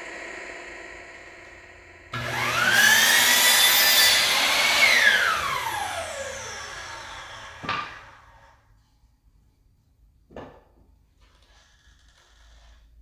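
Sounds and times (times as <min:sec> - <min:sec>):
electric miter saw cutting wood: 0:00.0 - 0:08.6.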